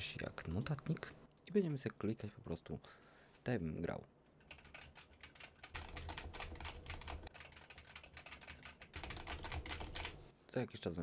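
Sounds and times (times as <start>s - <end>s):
fast typing on keyboard: 4.4s - 10.2s.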